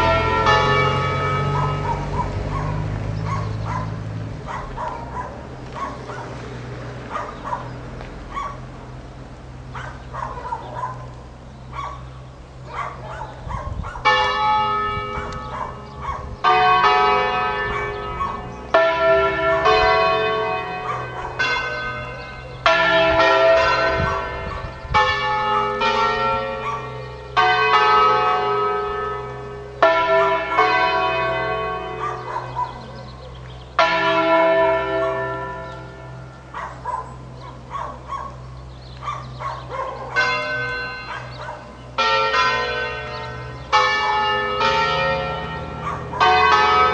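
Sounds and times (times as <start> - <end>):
church bells ringing: 0.0 - 46.9
dog barking: 1.5 - 6.4, 7.1 - 8.7, 9.7 - 14.0, 15.2 - 16.4, 17.6 - 18.5, 19.4 - 19.9, 20.8 - 21.6, 24.0 - 24.7, 26.5 - 27.0, 31.9 - 33.2, 36.5 - 41.8, 45.8 - 46.4.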